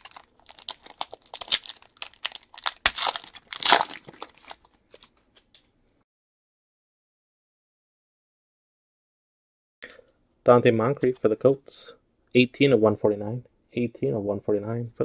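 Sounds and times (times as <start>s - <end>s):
plastic wrapper crinkling: 0.0s - 5.2s.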